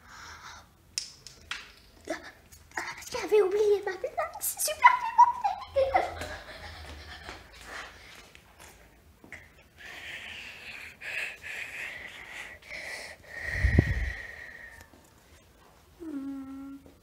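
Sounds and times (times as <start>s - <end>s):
heavy wheezy breathing: 9.8s - 14.8s.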